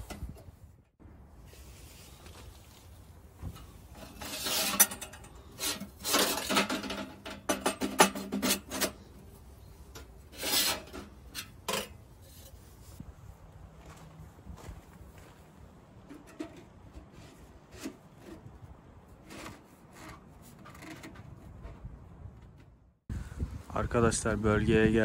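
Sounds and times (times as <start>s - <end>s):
metal stovepipe scraping and clinking: 3.6s - 12.7s, 16.1s - 18.4s.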